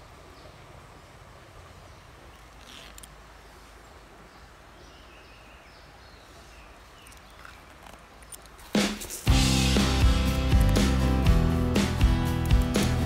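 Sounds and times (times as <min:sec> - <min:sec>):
low background hiss and rumble: 0:00.0 - 0:11.7
soft clicks: 0:07.0 - 0:08.6.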